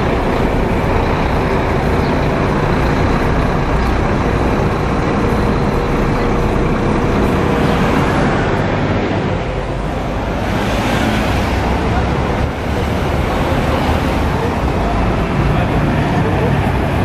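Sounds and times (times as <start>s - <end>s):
diesel coach engines rumbling: 0.0s - 17.0s.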